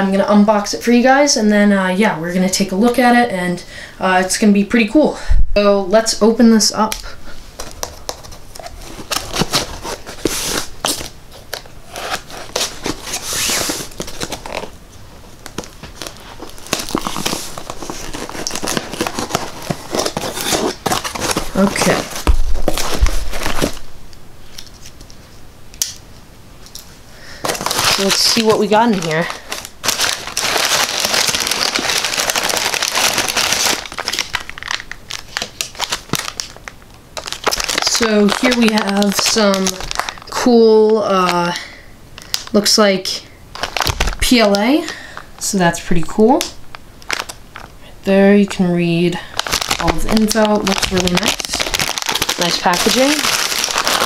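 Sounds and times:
packing tape crinkling: 0:07.6 - 0:25.2, 0:26.7 - 0:41.6, 0:43.5 - 0:45.4, 0:46.3 - 0:47.8, 0:49.2 - 0:54.0.

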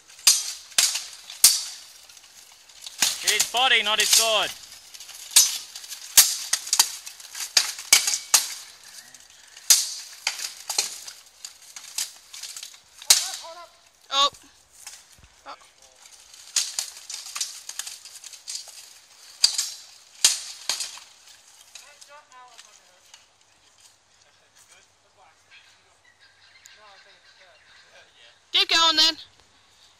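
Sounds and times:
swords clashing on armour: 0:00.1 - 0:08.7, 0:09.6 - 0:13.6, 0:19.4 - 0:21.1.

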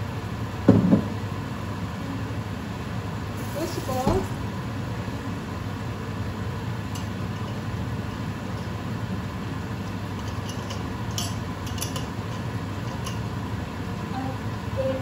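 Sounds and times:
vegetables sizzling in a pan: 0:03.4 - 0:04.1.

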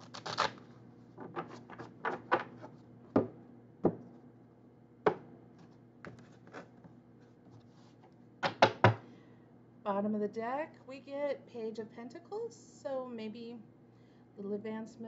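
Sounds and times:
cards being shuffled: 0:00.0 - 0:02.8, 0:05.6 - 0:06.8.

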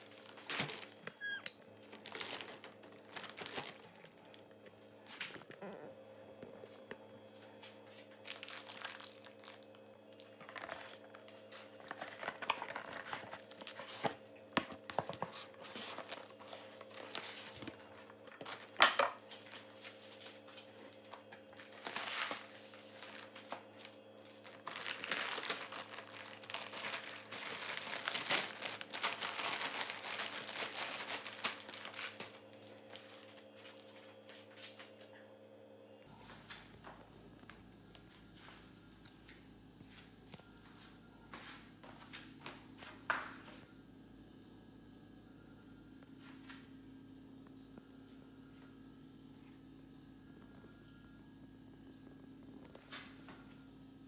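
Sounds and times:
plastic packaging crinkling: 0:00.0 - 0:05.6, 0:08.1 - 0:34.1
steady low hum: 0:00.0 - 0:54.0.

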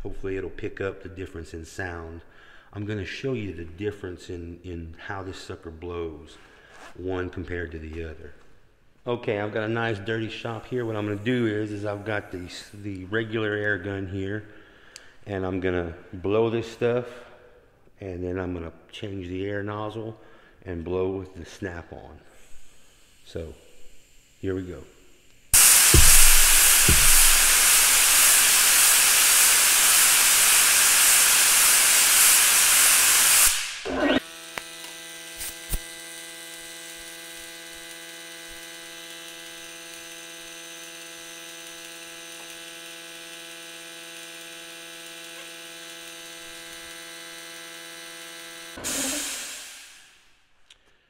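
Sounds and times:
air compressor running: 0:25.0 - 0:34.7, 0:44.6 - 0:50.2
air blow gun blast: 0:25.6 - 0:34.2, 0:48.8 - 0:50.2.

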